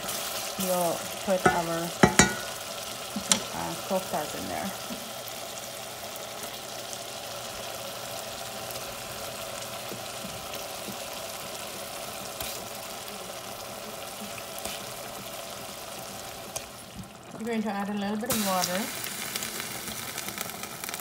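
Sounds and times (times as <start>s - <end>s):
curry boiling in a pot: 0.0s - 21.0s.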